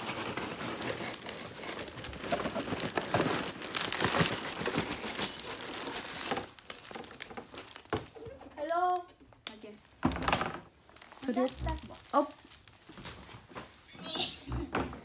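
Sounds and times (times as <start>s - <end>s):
cardboard box rustling: 0.0s - 8.1s
plastic bags crinkling: 0.0s - 8.4s, 9.6s - 13.9s.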